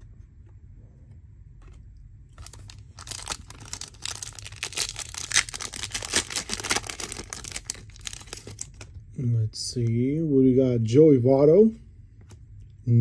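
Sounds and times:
card pack wrapper crinkling: 2.3s - 9.0s.

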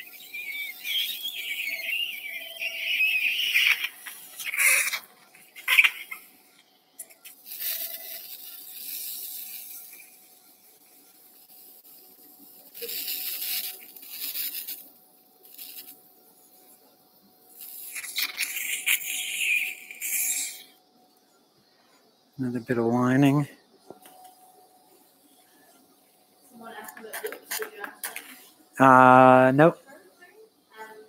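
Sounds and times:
bursts of hissing noise: 0.0s - 16.6s, 17.5s - 20.8s
faint steady tone: 0.0s - 27.1s.

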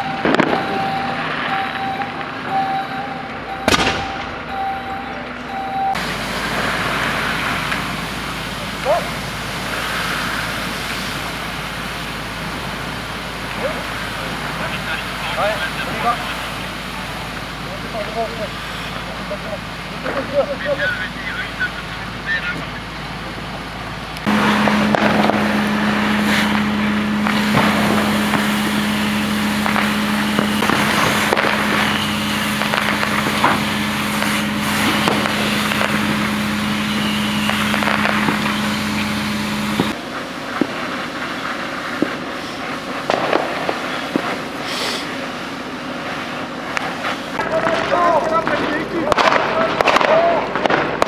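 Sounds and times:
fire engine pump humming: 0.0s - 51.0s
sharp cracks: 3.7s - 4.4s, 24.2s - 51.0s
rushing hissing water hose: 6.0s - 22.8s, 24.2s - 49.1s.

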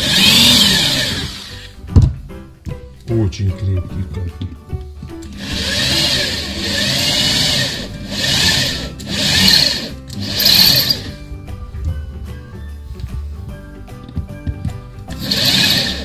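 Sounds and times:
electric drill grinding into tile: 0.0s - 1.8s, 5.2s - 11.2s, 15.1s - 16.0s.

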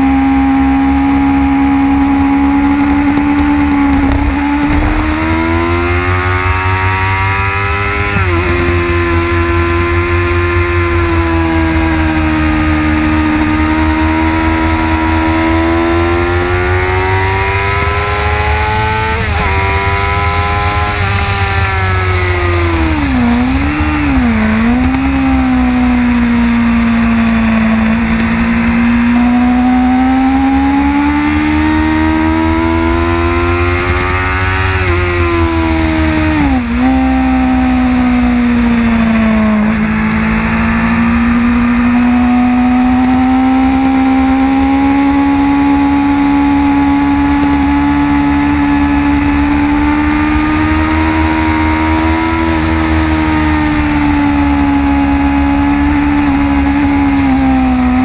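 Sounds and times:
motorcycle engine at high revs: 0.0s - 58.0s
wind rumble on microphone: 0.0s - 58.0s.

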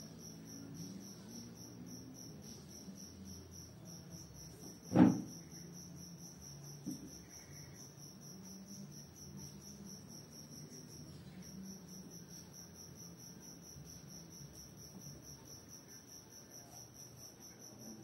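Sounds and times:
cricket chirping: 0.0s - 18.0s
loud thump: 4.9s - 5.3s.

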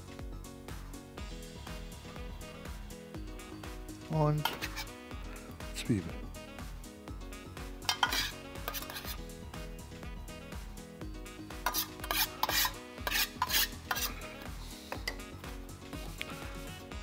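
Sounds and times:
metal tongs scraping and clicking: 4.4s - 4.9s, 7.9s - 9.1s, 11.7s - 14.2s.

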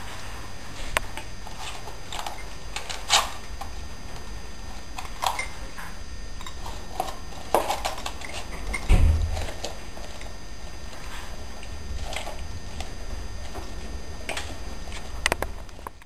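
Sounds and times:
dog crunching a chew: 6.4s - 16.0s
low thump: 8.9s - 9.4s.

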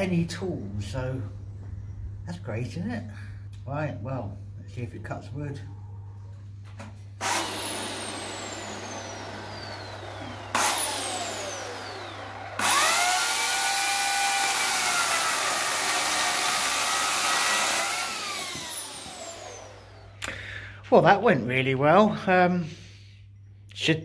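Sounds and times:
chainsaw cutting log: 7.2s - 20.2s.

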